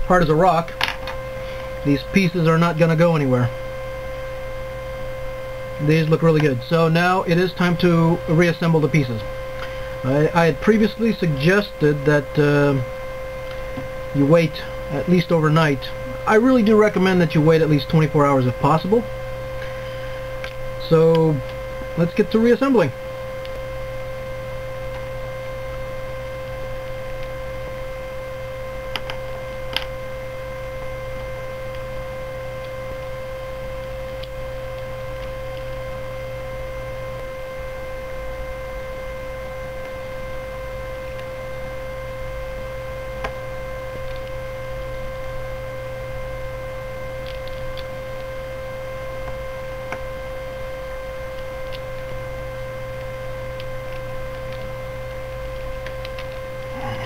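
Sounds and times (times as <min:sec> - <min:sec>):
electrical hum with whine: 0:00.0 - 0:57.0.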